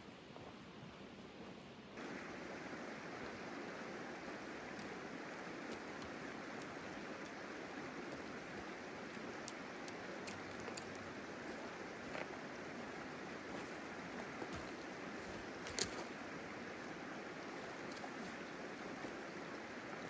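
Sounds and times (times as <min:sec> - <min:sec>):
river running over rocks: 0:02.0 - 0:20.0
stones clicking underfoot: 0:05.6 - 0:16.2.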